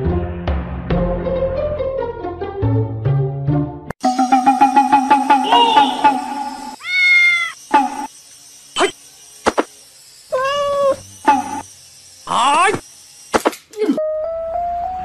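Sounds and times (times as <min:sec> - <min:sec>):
cat meowing: 0:06.8 - 0:07.6, 0:10.3 - 0:11.0.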